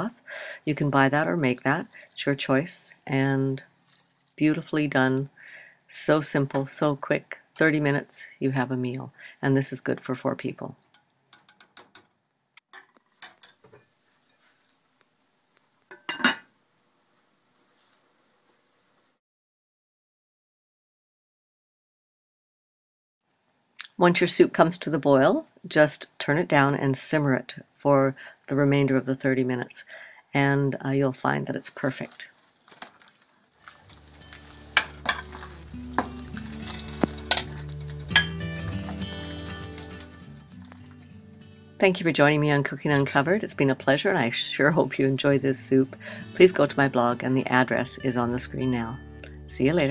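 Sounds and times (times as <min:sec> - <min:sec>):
soft background music: 0:33.7 - 0:49.9
metal ladle clinking on glass: 0:34.4 - 0:38.4
spatula tapping glass pot: 0:34.4 - 0:40.0.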